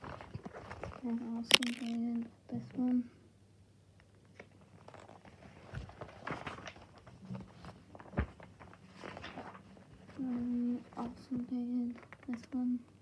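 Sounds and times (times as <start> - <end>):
paper pages rustling: 0.0 - 2.0, 4.7 - 11.1.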